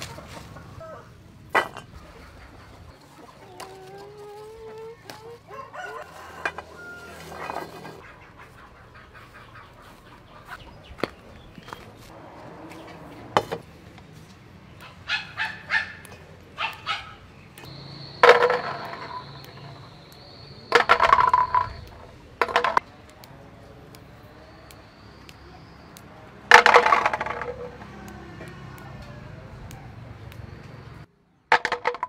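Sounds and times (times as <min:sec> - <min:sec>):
chickens calling: 0:00.0 - 0:31.5
steady high whine: 0:17.6 - 0:22.5.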